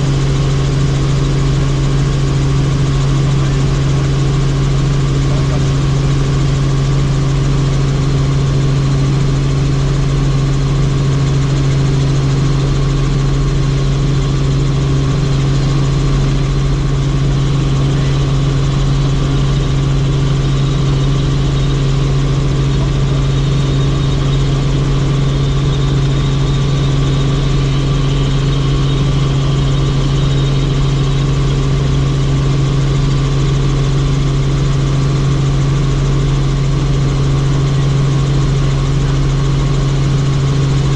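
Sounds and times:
helicopter engine and rotors drone: 0:00.0 - 0:40.9.

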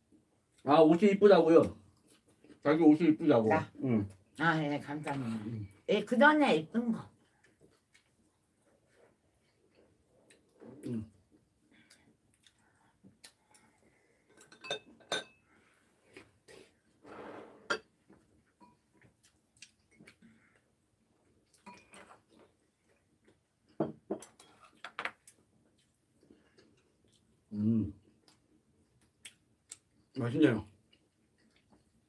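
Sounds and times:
cutlery clinking on ceramic dishes: 0:14.3 - 0:15.4, 0:21.6 - 0:22.1.

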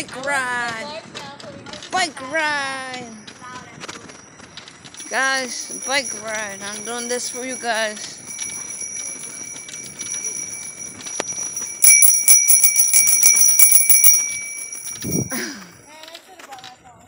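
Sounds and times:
bicycle bell ringing: 0:03.0 - 0:16.0.

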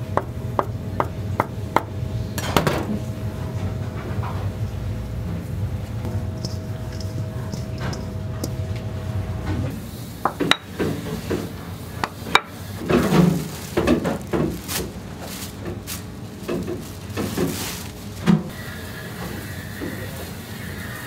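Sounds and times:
plastic film rustling: 0:12.8 - 0:18.6.

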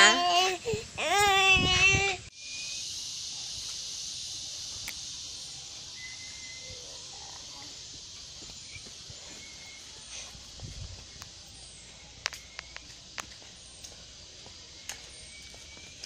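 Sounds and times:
insect chorus drone: 0:00.0 - 0:16.0
faint short whistles: 0:06.0 - 0:06.8.

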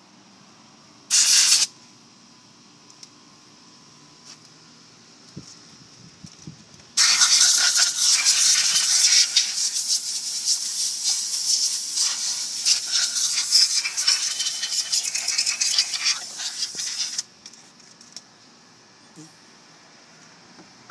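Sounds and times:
compressed air blow gun hissing: 0:01.1 - 0:01.7, 0:07.0 - 0:17.3.

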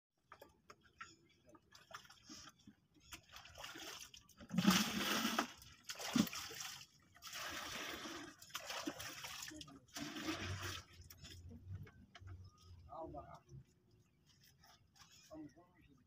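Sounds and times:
water pouring into plastic bucket: 0:03.1 - 0:11.4.

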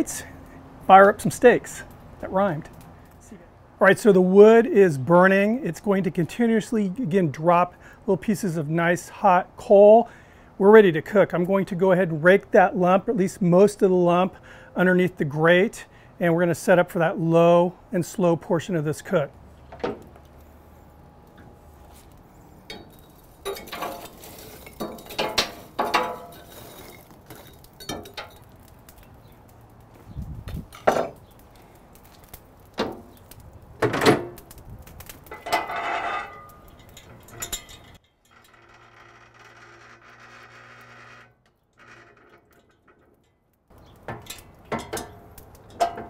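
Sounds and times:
metal rake scraping charcoal: 0:20.3 - 0:29.8, 0:30.6 - 0:46.0.

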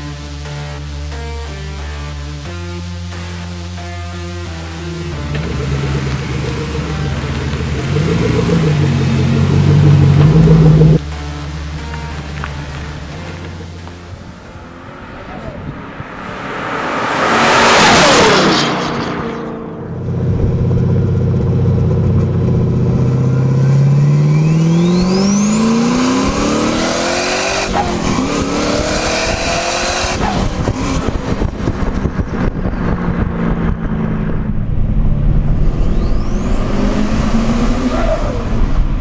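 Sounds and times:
engine revving under acceleration: 0:04.3 - 0:14.0, 0:14.6 - 0:39.0
car passing by fast: 0:14.3 - 0:20.9.

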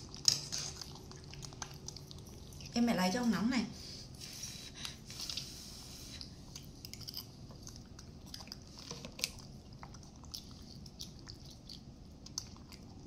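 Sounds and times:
monkey chewing and smacking: 0:00.0 - 0:02.8, 0:06.2 - 0:13.0.

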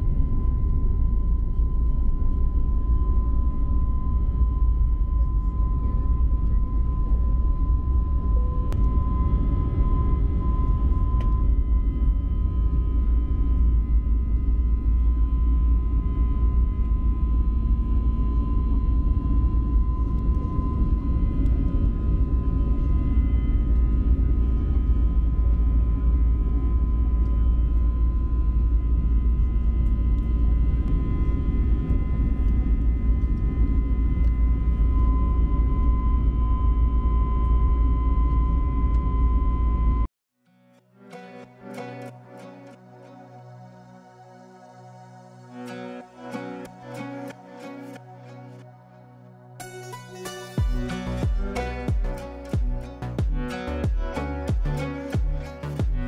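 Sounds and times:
airplane engine and airflow roar: 0:00.0 - 0:40.1
thin steady whine: 0:00.0 - 0:40.1, 0:41.1 - 0:56.0.

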